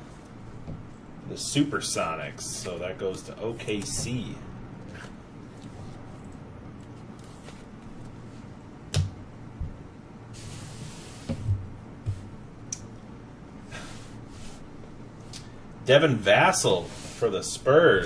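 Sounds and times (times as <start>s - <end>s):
faint low hum: 0.0s - 18.0s
cards sliding rustle: 4.8s - 8.2s.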